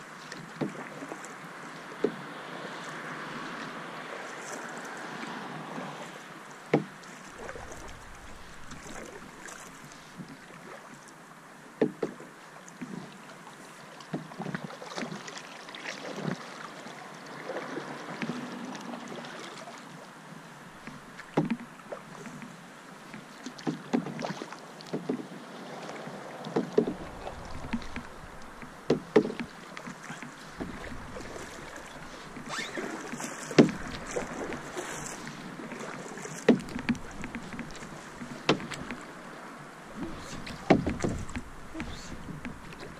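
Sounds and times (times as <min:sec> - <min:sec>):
paddle splashing in water: 0:00.1 - 0:11.2, 0:11.8 - 0:20.0, 0:20.8 - 0:42.9
sharp knocks: 0:26.8 - 0:29.5, 0:33.6 - 0:34.3, 0:36.5 - 0:39.0, 0:40.0 - 0:42.6.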